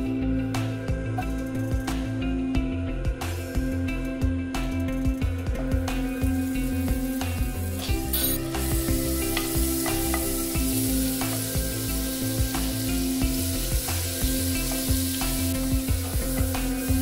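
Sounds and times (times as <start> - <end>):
background music: 0.0 - 17.0
butter sizzling in frying pan: 5.8 - 17.0.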